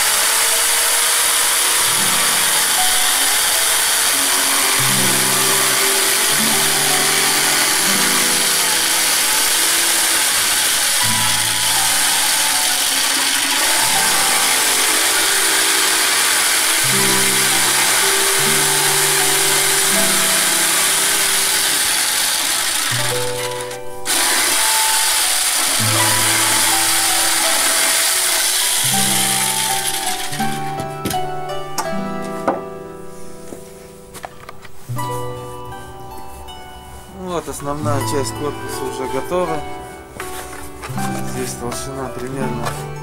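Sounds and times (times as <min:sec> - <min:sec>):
electric jigsaw cutting wood: 0:00.0 - 0:31.2
music of slow held notes: 0:00.0 - 0:43.0.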